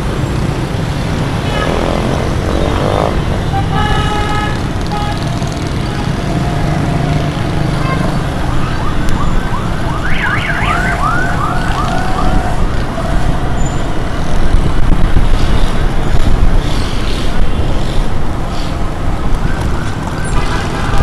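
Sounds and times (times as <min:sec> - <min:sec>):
road traffic rumble: 0:00.0 - 0:21.0
electronic siren warbling: 0:08.4 - 0:12.4.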